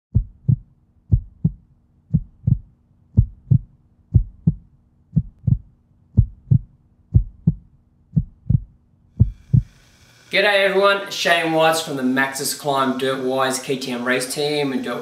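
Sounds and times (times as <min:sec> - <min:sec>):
heartbeat thumps: 0:00.1 - 0:09.8.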